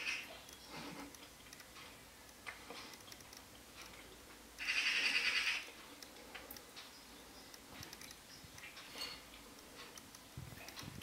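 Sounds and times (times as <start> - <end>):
magpie rattling chatter: 4.6 - 5.6
faint ticks: 5.7 - 11.0.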